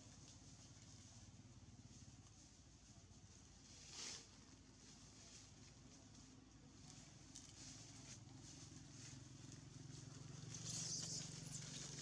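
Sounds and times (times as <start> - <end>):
dry leaves rustling underfoot: 0.0 - 12.0
distant motor engine hum: 6.1 - 12.0.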